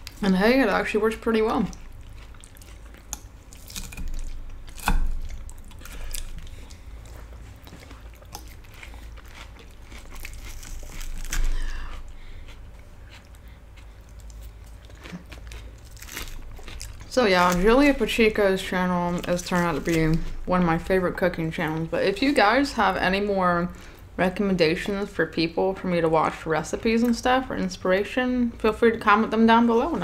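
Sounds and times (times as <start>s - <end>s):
chewing and biting food: 1.6s - 18.0s.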